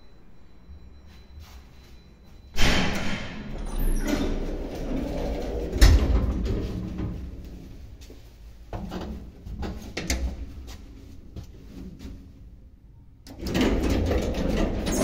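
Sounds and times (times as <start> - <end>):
elevator doors sliding and rattling: 2.4 - 15.0
elevator door clunk: 2.5 - 7.4, 13.3 - 15.0.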